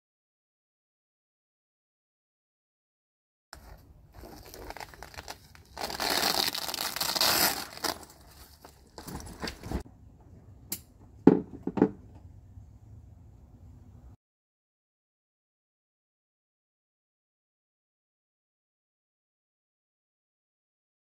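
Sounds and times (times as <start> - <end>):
fabric rustling: 3.6 - 9.8
velcro tearing: 4.2 - 8.6.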